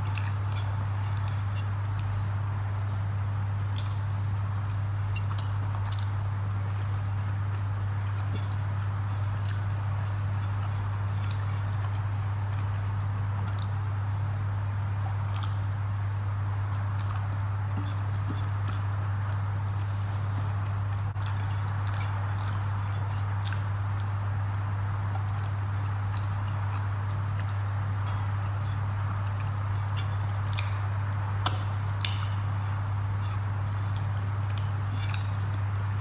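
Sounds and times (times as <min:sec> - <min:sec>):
fingers mixing rice on a plate: 0:00.0 - 0:35.8
loud steady low hum: 0:00.0 - 0:36.0
chewing clicks: 0:03.8 - 0:06.3, 0:08.0 - 0:13.8, 0:15.0 - 0:15.8, 0:20.6 - 0:32.5, 0:33.1 - 0:35.6.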